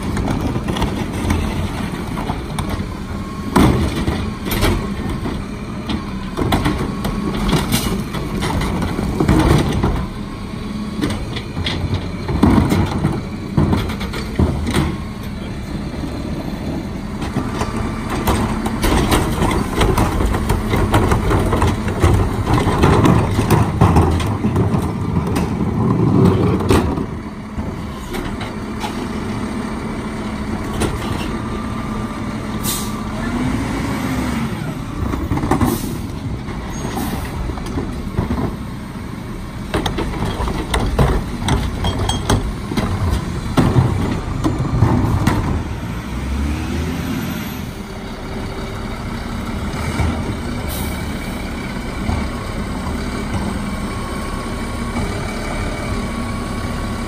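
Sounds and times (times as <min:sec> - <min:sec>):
truck engine revving: 0:00.0 - 0:38.4, 0:42.5 - 0:57.0
air brake hisses: 0:32.6 - 0:33.0.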